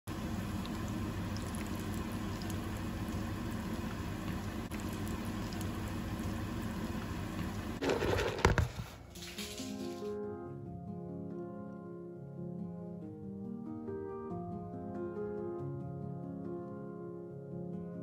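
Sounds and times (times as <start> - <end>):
patties sizzling in oil: 0.1 - 7.8.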